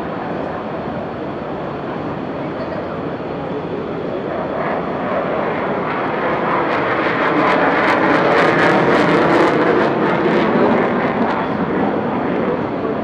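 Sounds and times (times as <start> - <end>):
jet aircraft flying past: 0.0 - 13.0.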